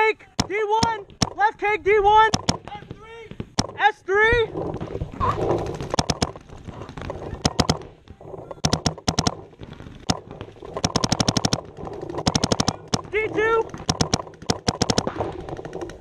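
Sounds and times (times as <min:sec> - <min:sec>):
paintball marker firing sharp pops: 0:02.3 - 0:03.8, 0:07.4 - 0:08.0, 0:08.6 - 0:16.0.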